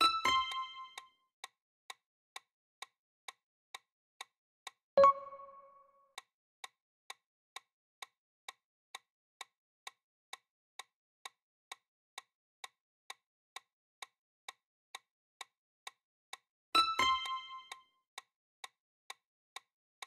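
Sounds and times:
clock ticking timer: 0:00.0 - 0:01.1, 0:05.0 - 0:06.3, 0:14.0 - 0:18.3.

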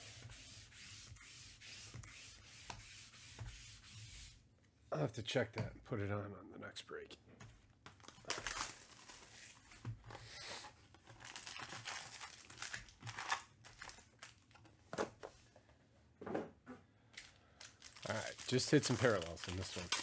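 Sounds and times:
wrappers tearing and crinkling: 0:08.0 - 0:09.6, 0:11.1 - 0:14.6, 0:17.2 - 0:20.0.

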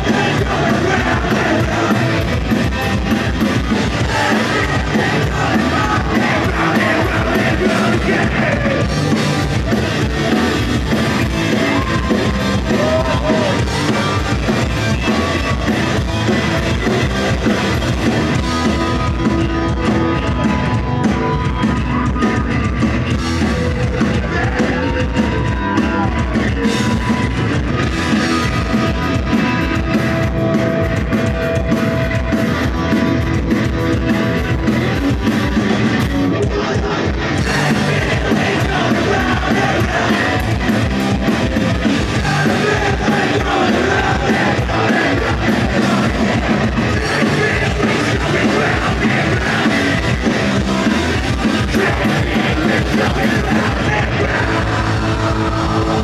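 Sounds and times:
person singing: 0:00.0 - 0:02.5, 0:03.8 - 0:09.0, 0:36.4 - 0:56.0
drum kit: 0:00.0 - 0:56.0
electric guitar: 0:00.0 - 0:56.0.

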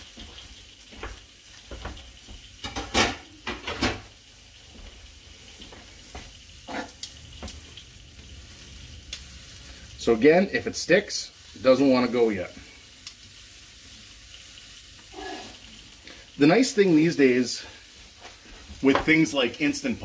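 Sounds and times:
steaks sizzling in a frying pan: 0:00.0 - 0:20.0
dishes clinking: 0:02.6 - 0:04.1.

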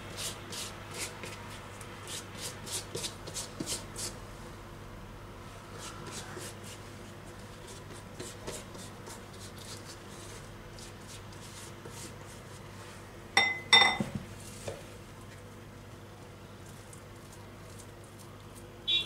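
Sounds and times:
spoon clinking on glass bowl: 0:13.4 - 0:14.1.

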